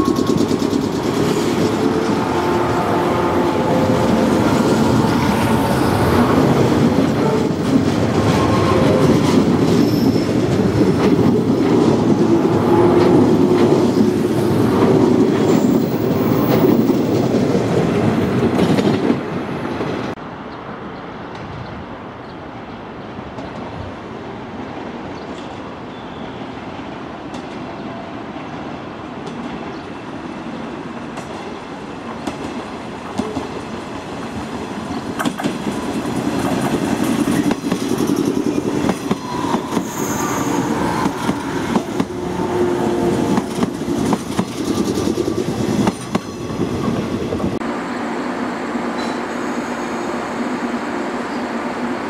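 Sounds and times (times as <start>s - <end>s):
approaching train rumble: 0.0s - 52.0s
train passing: 0.0s - 52.0s
wheels clicking over rail joints: 34.4s - 40.0s.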